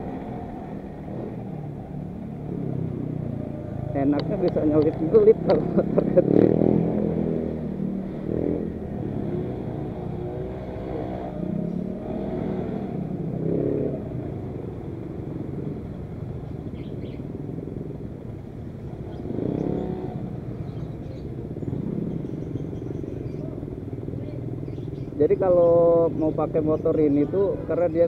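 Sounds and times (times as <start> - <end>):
scooter engine revving: 0.0 - 14.4, 18.9 - 25.1.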